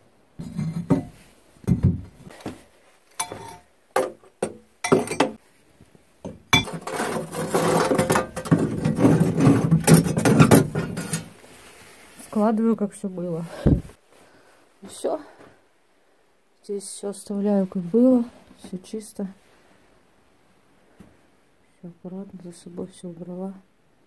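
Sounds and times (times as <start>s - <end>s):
metal knocks and clunks: 0.4s - 2.2s, 3.2s - 5.4s, 6.2s - 11.3s
metal scraping and rattling: 6.6s - 11.4s.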